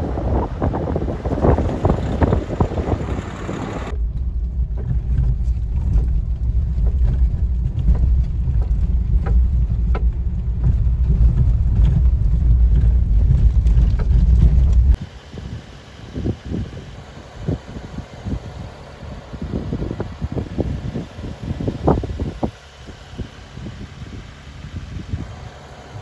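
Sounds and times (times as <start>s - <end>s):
vehicle driving rumble: 0.0s - 26.0s
wind-like noise: 0.0s - 26.0s
small knocks and rattles: 3.9s - 15.0s.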